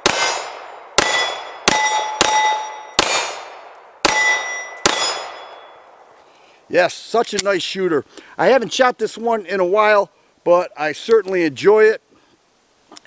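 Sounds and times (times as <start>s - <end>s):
steel target ringing clang: 0.0s - 3.4s, 4.0s - 5.9s
pistol shots: 0.0s - 5.7s.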